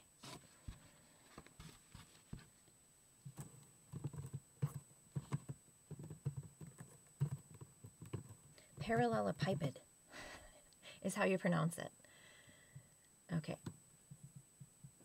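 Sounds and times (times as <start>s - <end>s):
keyboard typing: 3.4s - 9.2s.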